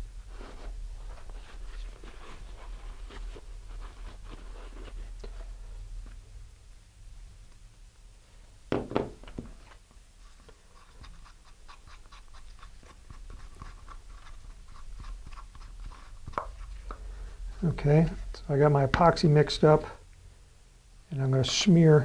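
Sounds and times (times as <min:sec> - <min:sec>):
stick scraping in paper cup: 0:10.7 - 0:16.8.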